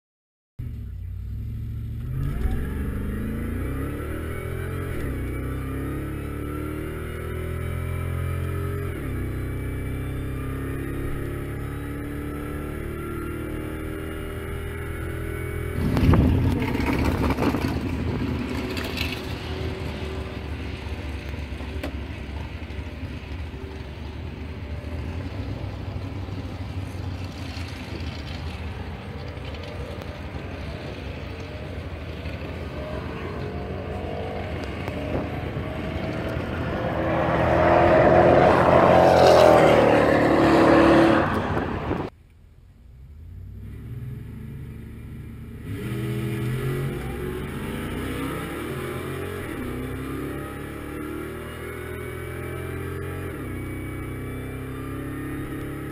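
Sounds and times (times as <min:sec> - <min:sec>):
truck engine at full throttle: 0:00.6 - 0:42.1.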